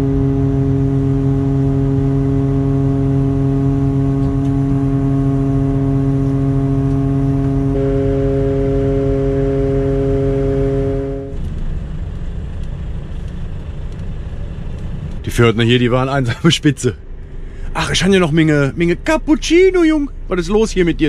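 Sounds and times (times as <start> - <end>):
hydraulic crane whine: 0.0 - 11.4
diesel truck engine rumble: 0.0 - 21.0.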